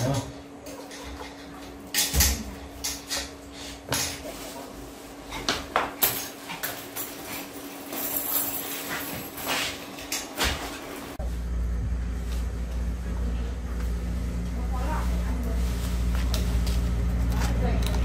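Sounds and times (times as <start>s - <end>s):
steady low hum: 8.0s - 18.0s.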